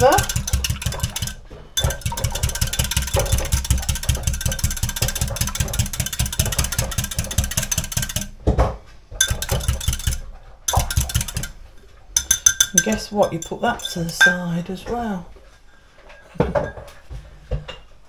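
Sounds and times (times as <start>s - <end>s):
whisk beating in glass jug: 0.0s - 8.4s, 9.2s - 14.4s.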